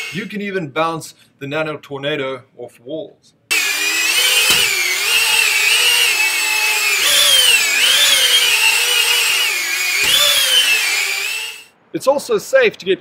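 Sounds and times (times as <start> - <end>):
drone motors whining: 3.5 - 11.7
drone knocking against wall: 4.4 - 4.8.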